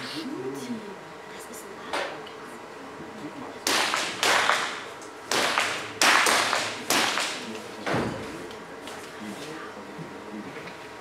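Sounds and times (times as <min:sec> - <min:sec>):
pistol shots echoing indoors: 0:03.7 - 0:07.4.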